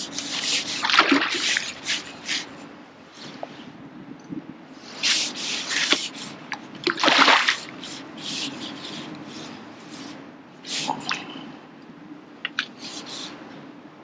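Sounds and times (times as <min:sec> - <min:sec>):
water splashing: 0:00.0 - 0:02.5, 0:05.0 - 0:09.5, 0:10.7 - 0:11.4.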